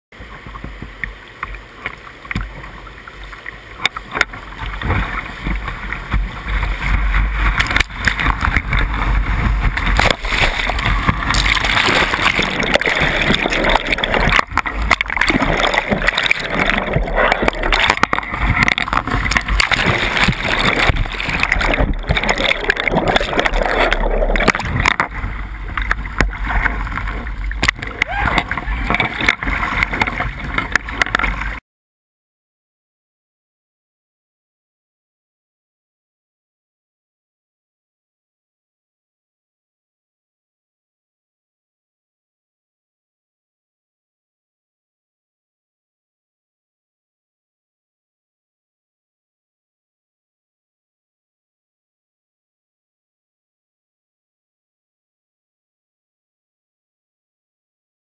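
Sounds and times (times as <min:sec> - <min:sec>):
paddle strokes: 0:00.2 - 0:31.6
waves splashing over boat: 0:00.2 - 0:31.6
whitewater rapids rushing: 0:27.7 - 0:30.0.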